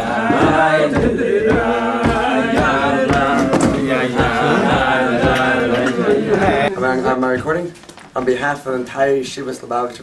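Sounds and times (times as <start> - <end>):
men singing together: 0.0 - 7.2
steady knocking beat: 0.0 - 8.3.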